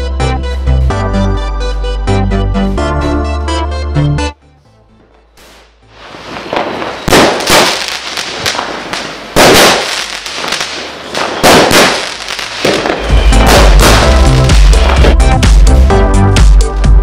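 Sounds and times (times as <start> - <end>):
music with heavy bass: 0.0 - 4.6, 12.9 - 17.0
fireworks bangs: 5.4 - 15.2
fireworks hissing and crackling: 5.4 - 15.2.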